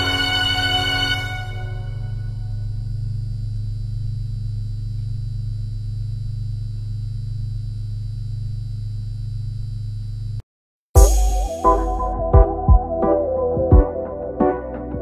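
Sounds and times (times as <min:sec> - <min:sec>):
low held drone note: 0:00.0 - 0:04.2, 0:11.0 - 0:14.4.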